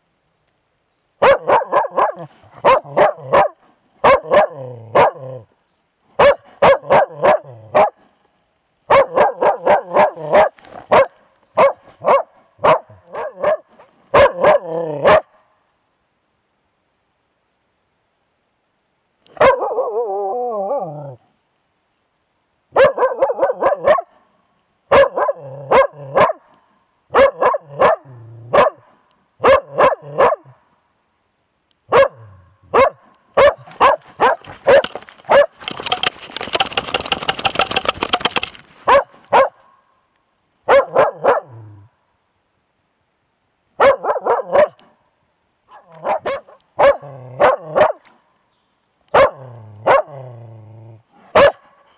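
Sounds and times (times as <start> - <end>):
dog barking: 1.2 - 5.4, 6.2 - 8.0, 8.9 - 15.4, 19.3 - 20.4, 22.7 - 24.2, 24.9 - 26.5, 27.1 - 30.6, 31.9 - 35.6, 38.8 - 39.7, 40.6 - 41.6, 43.8 - 45.0, 45.7 - 48.1, 49.1 - 50.2, 51.2 - 51.9.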